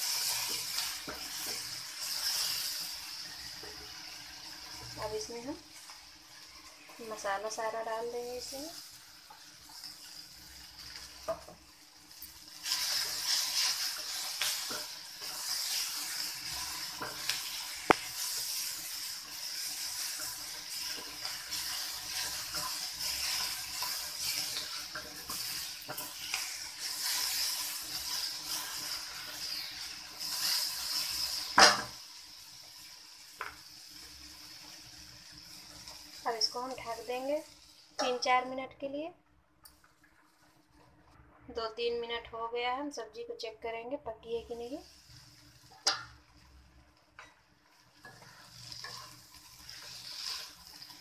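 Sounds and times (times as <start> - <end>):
vegetables sizzling in oil: 0.0 - 39.1, 39.7 - 51.0
metal spatula scraping pan: 48.0 - 50.9.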